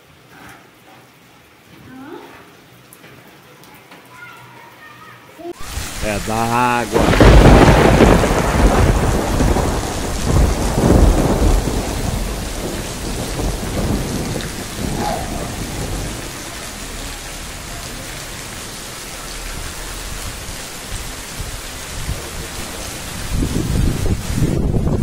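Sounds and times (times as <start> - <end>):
heavy rain falling: 5.6 - 25.0.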